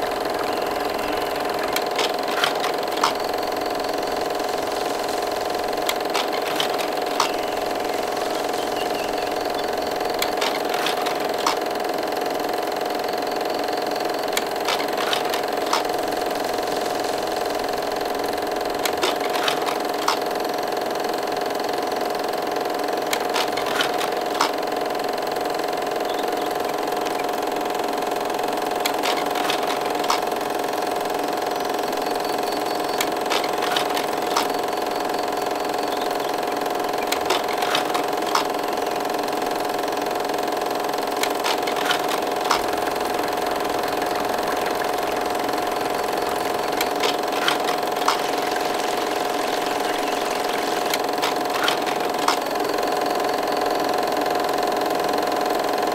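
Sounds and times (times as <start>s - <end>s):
droning hum with held tones: 0.0s - 55.9s
faint clicks: 41.0s - 52.7s.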